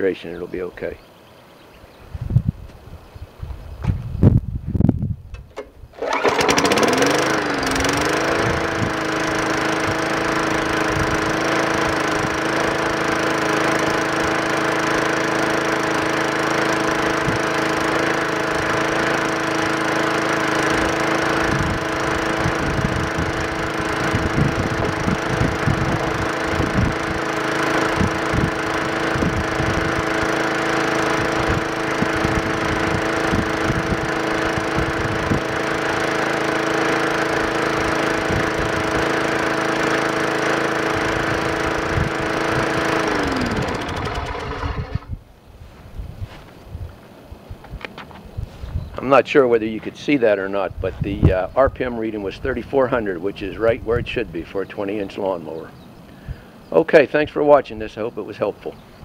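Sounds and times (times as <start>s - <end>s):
lawn mower engine running: 5.3s - 45.3s, 49.0s - 55.6s.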